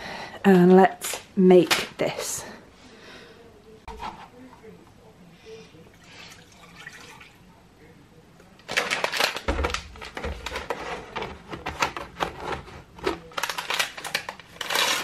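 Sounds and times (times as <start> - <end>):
sachet crinkling and tearing: 8.6 - 10.1, 13.3 - 15.0.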